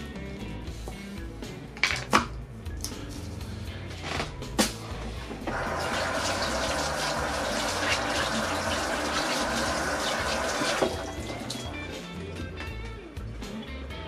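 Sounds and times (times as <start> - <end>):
tap water running: 5.4 - 12.0.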